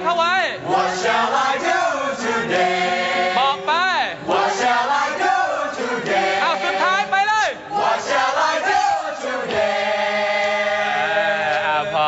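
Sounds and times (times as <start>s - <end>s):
men singing vocal warm-up: 7.8s - 12.0s.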